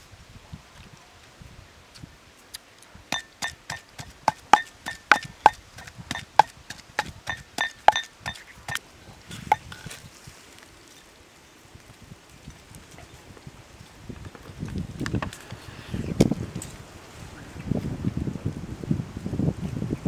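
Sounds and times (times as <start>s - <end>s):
pestle pounding in mortar: 3.1s - 8.8s.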